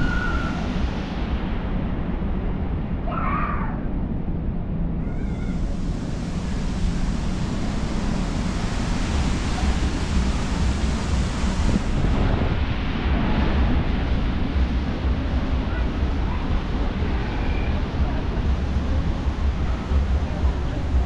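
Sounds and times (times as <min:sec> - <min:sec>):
rushing wind and sea: 0:00.0 - 0:21.0
wind buffeting microphone: 0:03.9 - 0:21.0.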